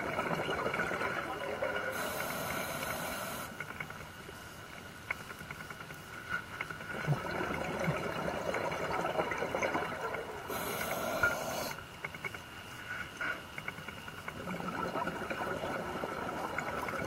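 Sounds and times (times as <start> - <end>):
crackling exhaust bubbles: 0.0 - 17.0
regulator inhalation hiss: 1.9 - 3.6, 10.5 - 11.8.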